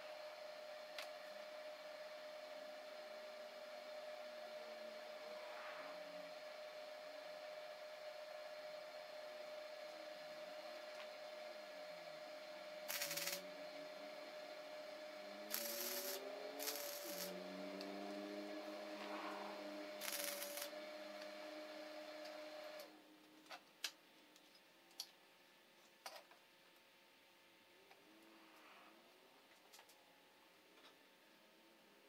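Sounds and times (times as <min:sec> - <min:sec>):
welder hum: 0:00.0 - 0:23.0
welder crackling hiss: 0:12.8 - 0:13.5, 0:15.3 - 0:17.9, 0:18.9 - 0:21.4.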